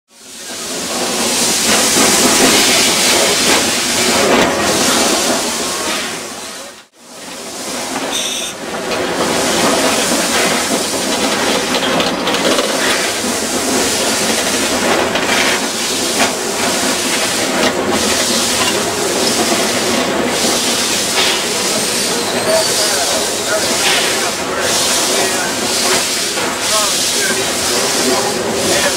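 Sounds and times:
steam locomotive hiss and running: 0.1s - 28.9s.

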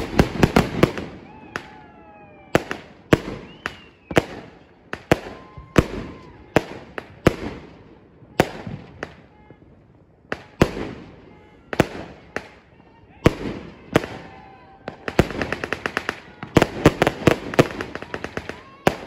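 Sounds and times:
firework whistling: 0.0s - 6.3s
firework bangs: 0.0s - 19.0s.

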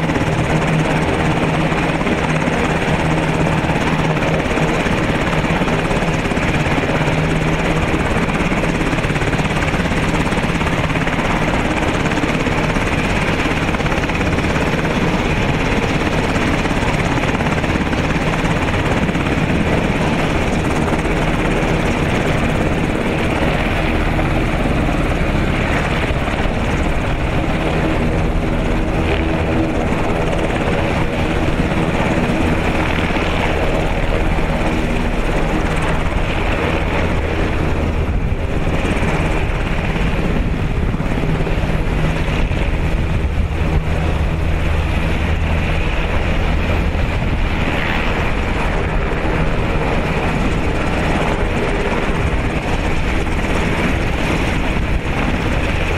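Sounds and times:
helicopter engines and rotors: 0.0s - 55.9s.

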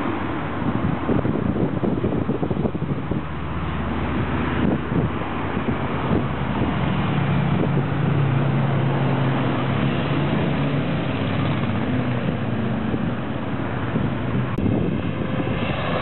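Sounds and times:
motorcycles riding past: 4.6s - 16.0s.

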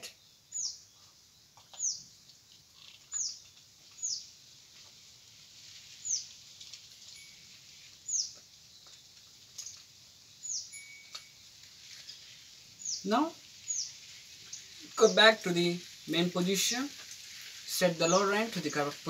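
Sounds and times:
small bird calling: 0.0s - 4.4s, 8.0s - 18.8s
faint hiss: 0.0s - 19.0s.

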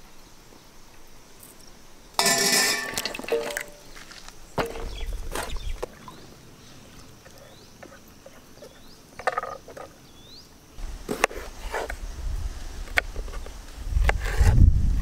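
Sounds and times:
high insect hum: 0.0s - 15.0s
vegetables and metal bowls clinking: 2.2s - 4.0s, 4.6s - 5.6s.

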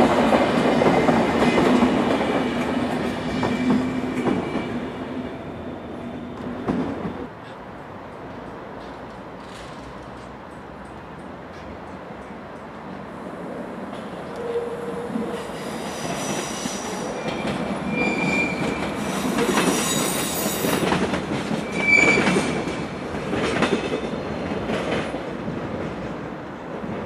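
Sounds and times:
train wheels rumbling and clattering: 0.0s - 13.1s, 13.8s - 27.0s
train wheels squealing: 14.4s - 20.9s, 21.5s - 22.8s.

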